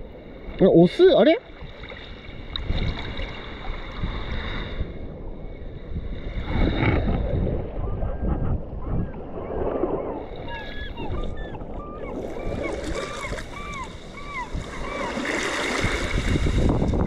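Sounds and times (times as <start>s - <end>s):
wind buffeting microphone: 1.5s - 17.0s
sea surf washing in: 12.2s - 17.0s.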